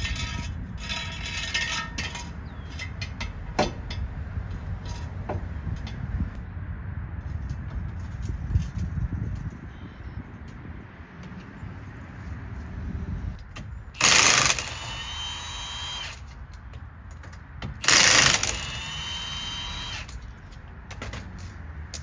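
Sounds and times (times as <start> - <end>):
impact wrench hammering: 0.1 - 4.0
impact wrench motor whine: 14.0 - 16.2, 17.8 - 20.2.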